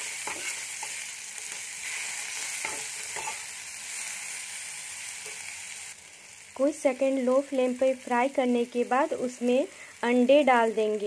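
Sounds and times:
spatula scraping pan: 0.0 - 3.5
vegetables sizzling in oil: 0.0 - 11.0.

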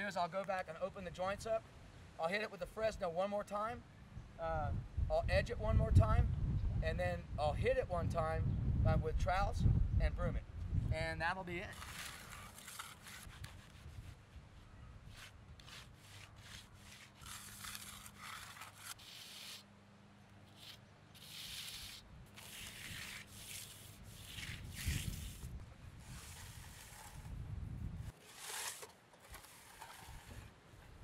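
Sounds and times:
wind rumbling on microphone: 4.2 - 12.0, 24.0 - 28.2
hand groover scraping wet concrete: 11.6 - 14.1, 15.1 - 19.6, 20.5 - 27.3, 28.1 - 30.5.

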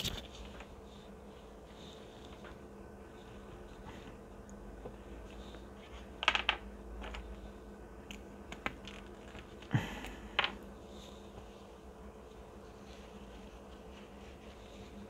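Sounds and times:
faint steady hum: 0.0 - 15.0.

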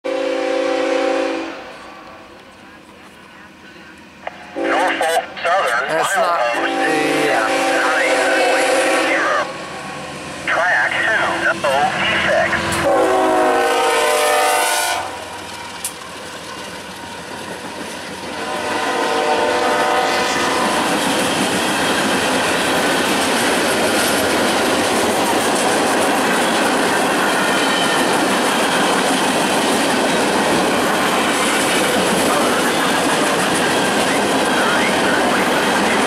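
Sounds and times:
locomotive horn: 0.1 - 2.3, 4.5 - 5.2, 6.5 - 9.7, 12.6 - 15.4, 18.3 - 21.0
train wheels rumbling and clacking: 7.0 - 36.0.

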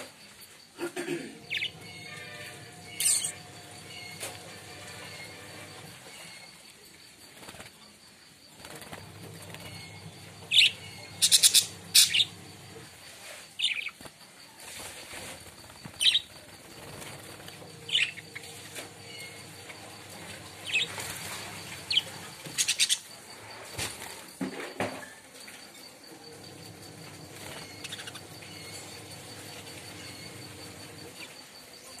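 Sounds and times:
budgerigars chirping: 1.5 - 2.1, 10.5 - 12.4, 17.8 - 19.3
wings flapping: 7.2 - 7.9, 8.5 - 12.0, 13.6 - 23.0.

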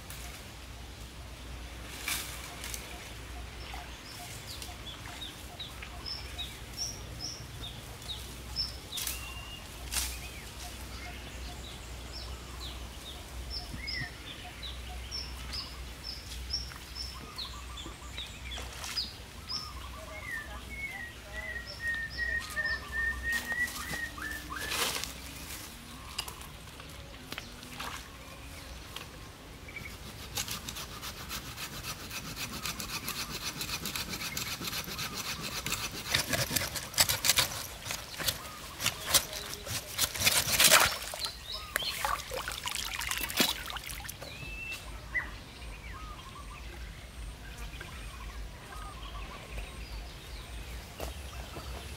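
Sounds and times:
small birds chirping: 2.5 - 51.9.

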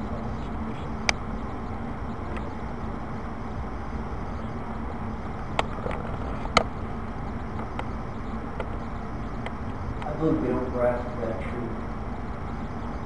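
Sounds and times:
low room rumble with hum: 0.0 - 13.0
sharp clicks: 0.7 - 1.5, 4.4 - 6.8, 7.4 - 10.2.

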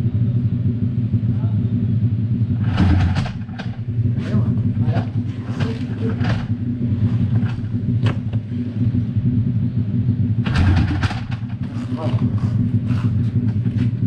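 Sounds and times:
motorcycle engine idling: 0.0 - 14.0
voices talking: 4.1 - 6.7, 11.6 - 13.4.

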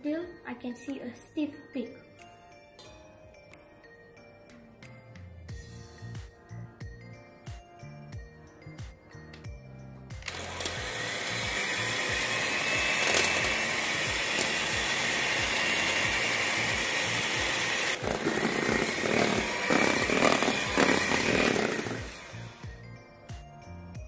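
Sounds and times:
electric hand mixer whipping cream: 10.2 - 22.8.

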